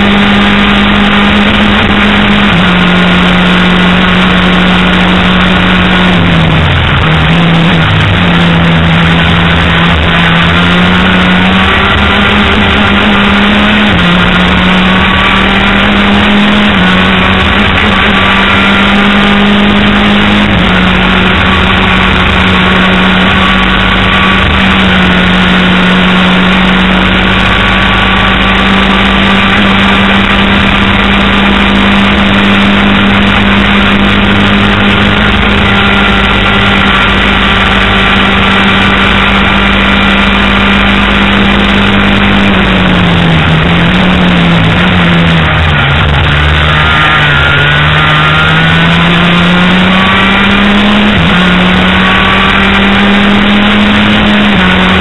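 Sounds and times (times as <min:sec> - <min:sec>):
racing engine at high revs: 0:00.0 - 0:55.0.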